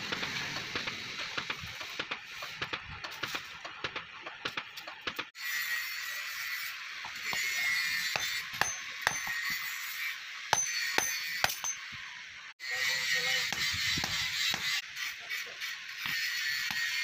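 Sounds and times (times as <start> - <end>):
hammer striking steel on anvil: 7.0 - 9.9, 10.5 - 12.0.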